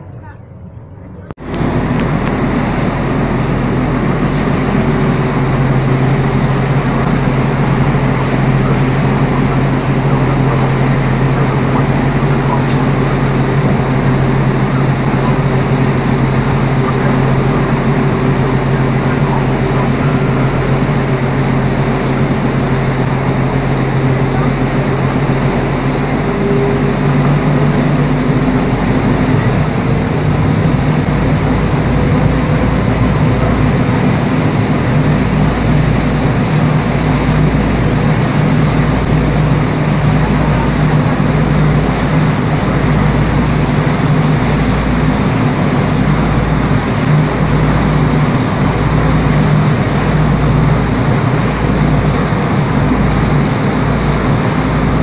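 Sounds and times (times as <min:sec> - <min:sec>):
engine droning: 0:00.0 - 0:55.0.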